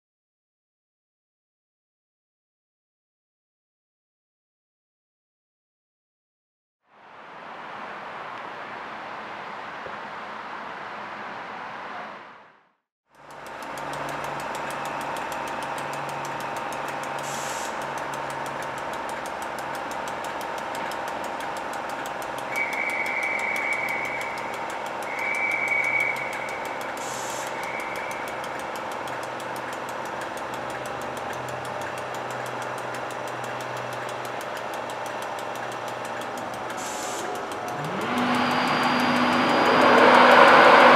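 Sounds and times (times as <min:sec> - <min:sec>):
electric locomotive humming: 0:13.2 - 0:40.9
high whistle-like tone: 0:22.5 - 0:28.3, 0:37.8 - 0:40.9.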